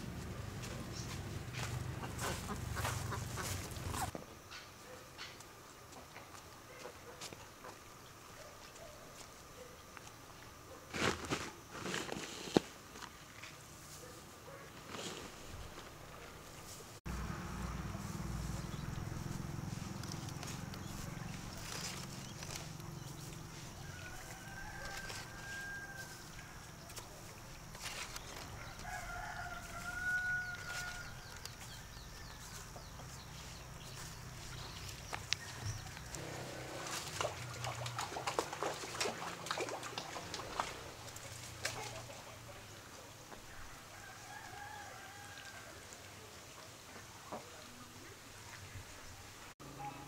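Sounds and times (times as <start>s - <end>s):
ducks calling: 1.6s - 4.1s
rooster crowing: 23.8s - 26.6s, 28.6s - 31.4s, 43.7s - 45.9s.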